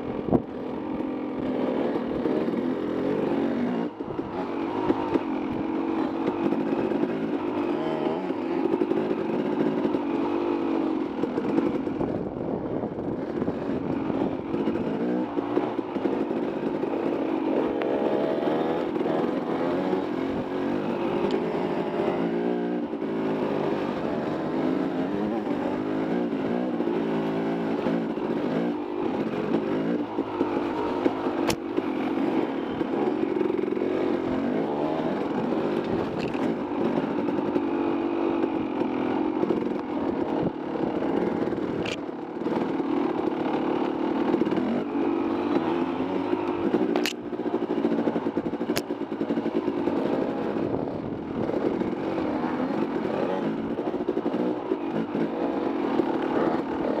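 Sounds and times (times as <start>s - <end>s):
dirt bike engine revving: 0.0s - 12.4s, 13.0s - 57.0s
sharp clicks: 46.9s - 47.2s.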